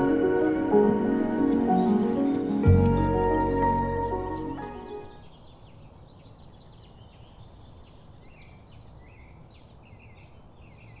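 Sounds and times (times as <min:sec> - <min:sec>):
low background noise: 0:00.0 - 0:11.0
small birds chirping: 0:01.4 - 0:11.0.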